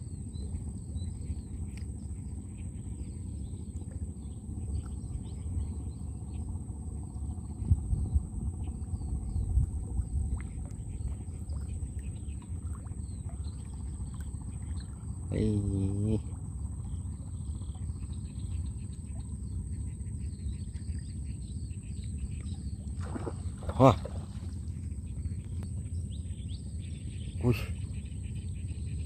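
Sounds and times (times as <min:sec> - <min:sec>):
birds chirping faintly: 0:00.0 - 0:29.0
water rumbling around boat: 0:00.0 - 0:29.0
small splashes: 0:09.7 - 0:15.1, 0:22.4 - 0:24.8.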